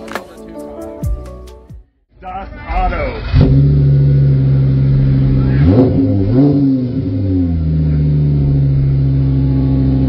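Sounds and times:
car engine idling and revving: 0:02.2 - 0:10.0.

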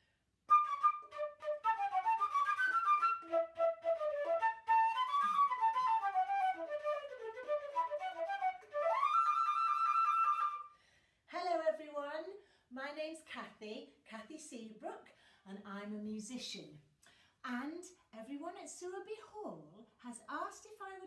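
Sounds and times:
flute melody: 0:00.5 - 0:10.7.

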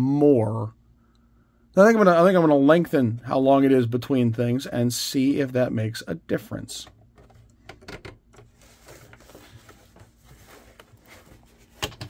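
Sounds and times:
faint steady hum: 0:00.0 - 0:12.0
fabric rustling: 0:08.5 - 0:12.0.

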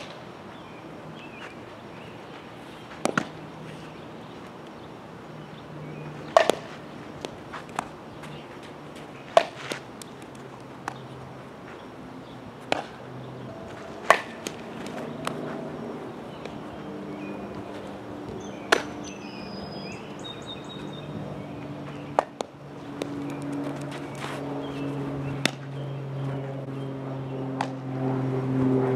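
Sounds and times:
softball slapping into gloves: 0:02.9 - 0:03.4, 0:06.2 - 0:08.4, 0:09.3 - 0:11.1, 0:12.6 - 0:13.0, 0:14.0 - 0:15.5, 0:18.7 - 0:19.0, 0:25.4 - 0:25.7, 0:27.6 - 0:27.8.

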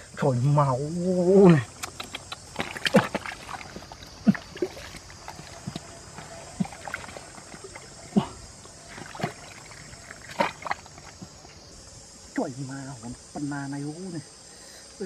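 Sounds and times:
wet mud squelching: 0:01.5 - 0:11.6.

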